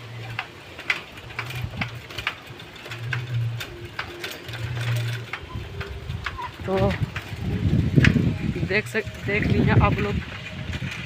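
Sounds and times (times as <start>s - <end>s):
bicycle chain ticking and rattling: 0.0s - 11.0s.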